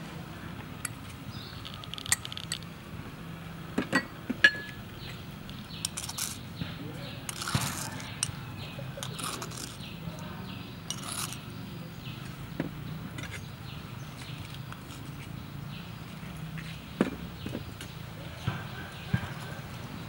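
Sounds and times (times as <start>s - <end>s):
metal spoon clinking: 10.9s - 11.4s.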